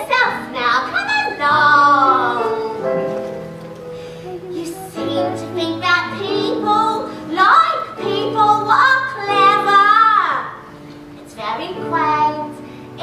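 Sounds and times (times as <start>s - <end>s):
woman singing: 0.0s - 2.8s, 4.4s - 10.6s
musical accompaniment: 0.0s - 13.0s.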